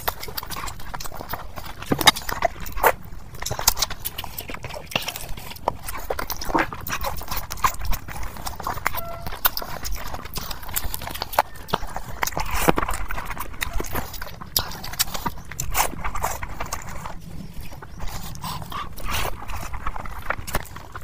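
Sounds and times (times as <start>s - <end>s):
chewing and lip smacking: 0.0s - 21.0s.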